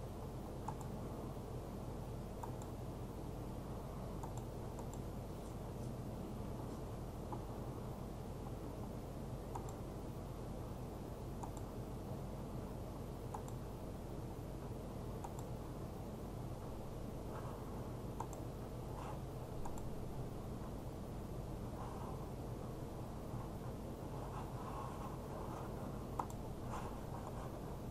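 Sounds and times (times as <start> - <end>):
steady low hum: 0.0 - 27.9
computer mouse clicks: 0.6 - 1.0, 2.4 - 2.8, 4.2 - 5.1, 9.5 - 9.8, 11.4 - 11.7, 13.3 - 13.6, 15.2 - 15.6, 18.2 - 18.5, 19.6 - 19.9, 26.1 - 27.4.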